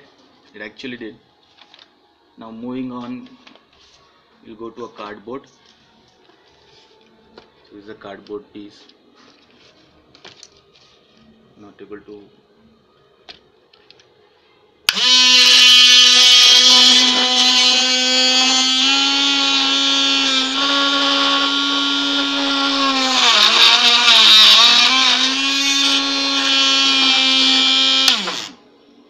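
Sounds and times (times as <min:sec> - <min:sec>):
drill motor whining: 0:14.9 - 0:28.6.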